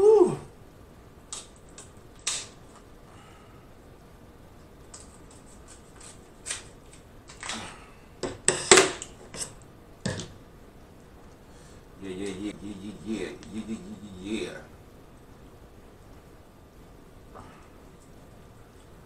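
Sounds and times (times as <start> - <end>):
shears cracking crab shell: 1.3 - 2.6, 4.9 - 7.6.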